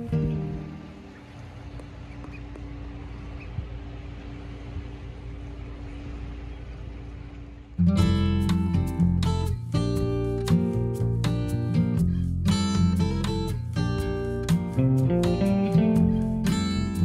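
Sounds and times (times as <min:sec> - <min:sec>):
faint steady hum: 0:00.0 - 0:09.2.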